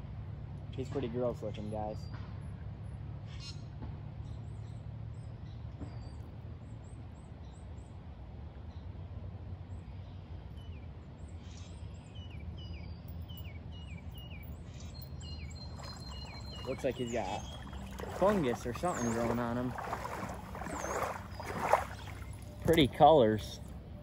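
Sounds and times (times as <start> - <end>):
small birds chirping: 10.6 - 23.7
short falling bird calls: 15.4 - 22.6
river flowing: 15.5 - 23.8.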